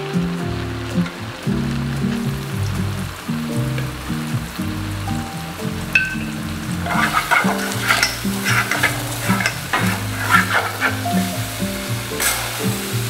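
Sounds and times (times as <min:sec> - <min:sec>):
background music with held notes: 0:00.0 - 0:13.0
meat sizzling in pots: 0:00.0 - 0:13.0
wooden spoon scraping pot: 0:06.7 - 0:12.4.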